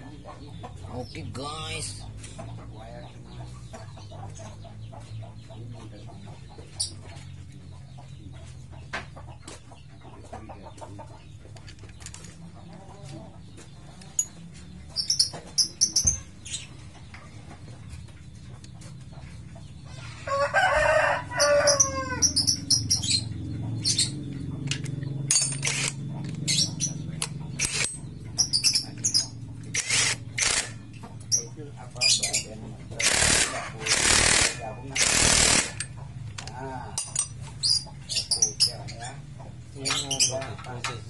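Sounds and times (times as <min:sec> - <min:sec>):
rooster crowing: 0:20.2 - 0:22.6.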